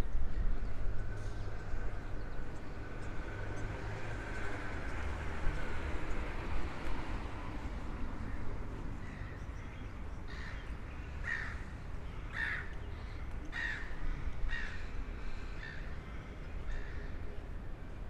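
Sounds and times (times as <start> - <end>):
crow cawing: 11.2 - 11.7, 12.3 - 12.7, 13.5 - 14.9.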